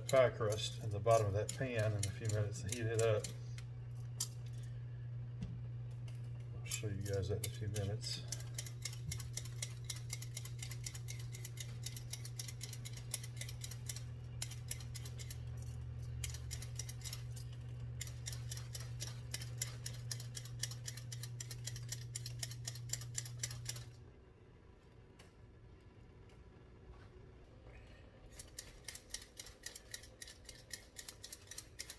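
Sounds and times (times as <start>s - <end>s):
oven humming: 0.0s - 31.9s
rapid clicking: 28.4s - 31.9s.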